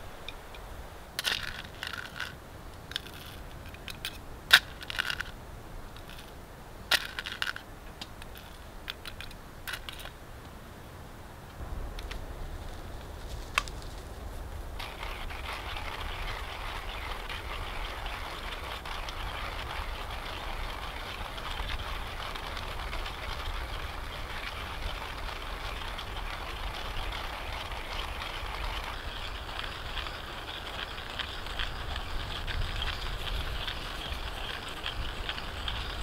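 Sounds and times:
wind hissing through trees: 0:00.0 - 0:36.0
wind rumble on microphone: 0:11.4 - 0:36.0.

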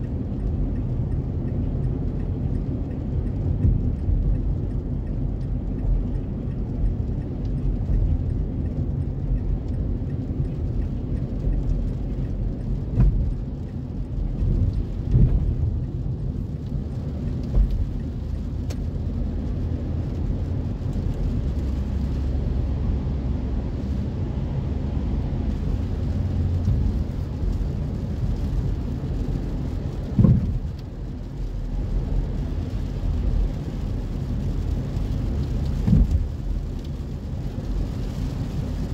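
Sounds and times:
rain on car body: 0:00.0 - 0:38.9
tyres and engine rumble: 0:00.0 - 0:38.9.

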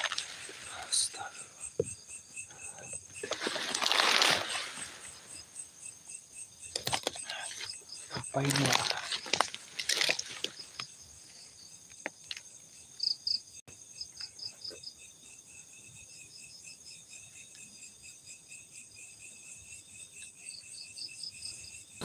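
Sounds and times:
faint clicks and rustles: 0:00.0 - 0:05.4, 0:06.7 - 0:11.0
insects chirping: 0:00.0 - 0:22.0.

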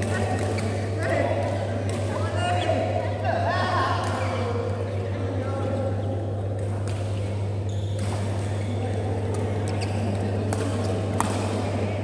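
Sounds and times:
racket hitting shuttlecock: 0:06.6 - 0:11.7.

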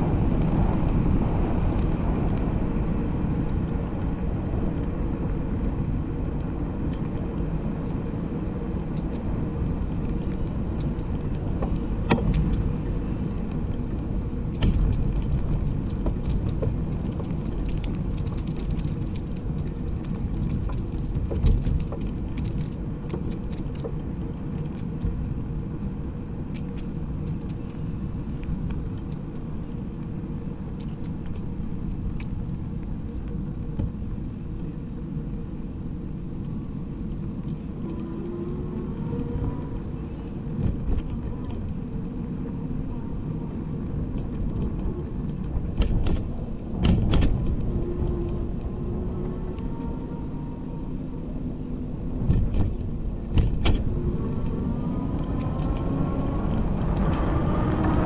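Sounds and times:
tyres rolling on paved path: 0:00.0 - 0:58.0.

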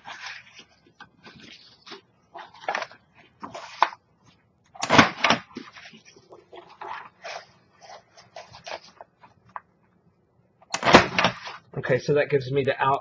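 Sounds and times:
cardstock rustling and scraping: 0:00.0 - 0:09.7.

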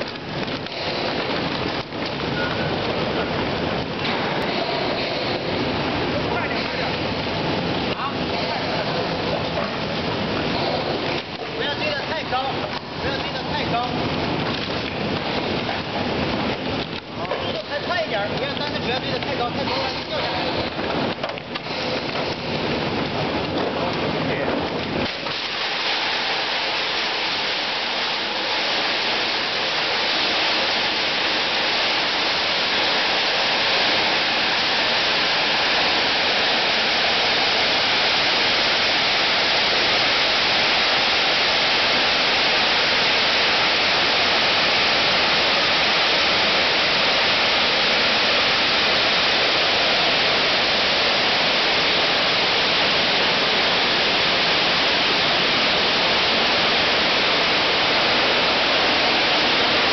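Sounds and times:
machine rushing noise: 0:25.0 - 0:59.9.

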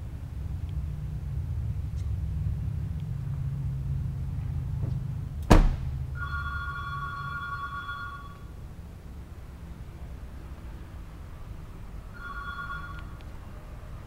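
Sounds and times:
low steady rumble: 0:00.0 - 0:14.0
car door slamming: 0:05.4 - 0:05.9
two-tone electronic ring: 0:06.2 - 0:08.5, 0:12.1 - 0:13.2.

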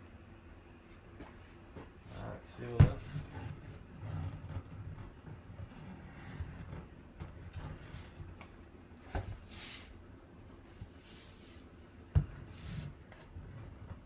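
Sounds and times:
cardboard scraping against hands: 0:03.0 - 0:08.4, 0:12.4 - 0:14.0.

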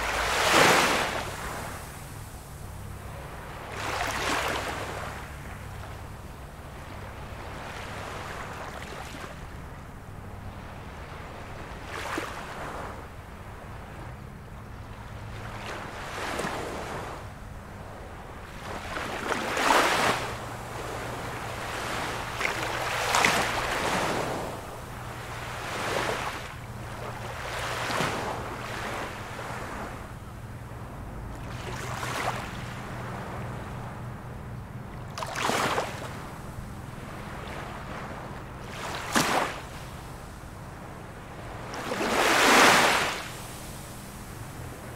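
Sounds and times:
small waves breaking on shore: 0:00.0 - 0:44.9
hiss of surf: 0:41.8 - 0:44.9.

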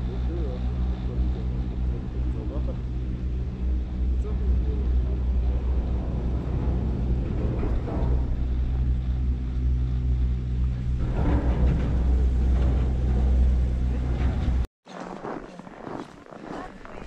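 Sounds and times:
vehicle engine droning: 0:00.0 - 0:14.7.

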